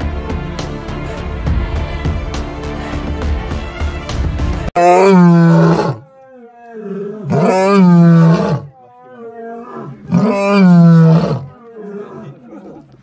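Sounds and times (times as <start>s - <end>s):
lion roaring: 4.8s - 12.9s
lion grunts: 6.8s - 13.0s.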